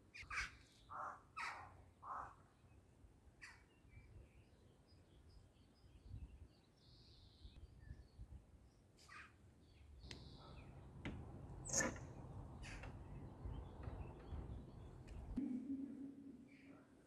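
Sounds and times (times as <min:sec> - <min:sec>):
faint birds chirping: 0:00.0 - 0:17.0
metal door latch clacking: 0:10.1 - 0:15.2.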